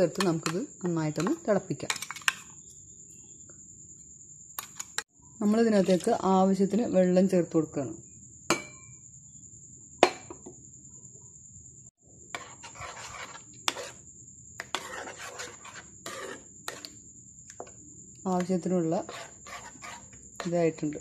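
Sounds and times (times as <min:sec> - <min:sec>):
metal spoon scraping a pan: 0:00.1 - 0:02.6, 0:04.6 - 0:06.2, 0:12.3 - 0:14.0, 0:14.6 - 0:17.0, 0:18.3 - 0:21.0.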